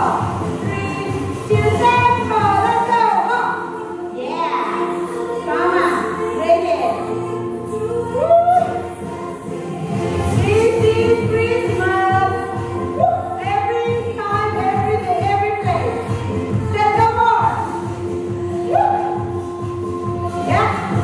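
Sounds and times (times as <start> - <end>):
steady music beat: 0.0 - 3.3.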